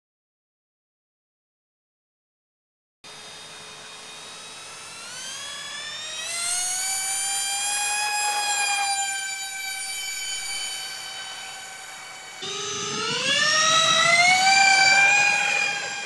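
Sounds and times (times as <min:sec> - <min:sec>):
model jet motors whining: 0:03.1 - 0:16.0.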